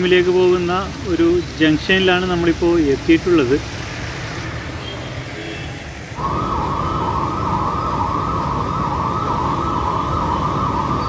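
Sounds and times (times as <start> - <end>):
traffic rumble: 0.0 - 11.0
electronic siren wailing: 6.2 - 11.0.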